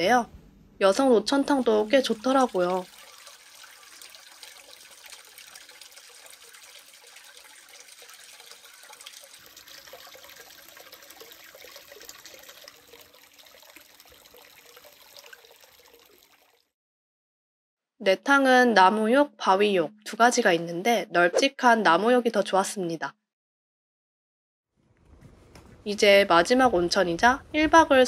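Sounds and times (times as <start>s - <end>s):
water trickling into a wooden bath: 1.6s - 16.8s.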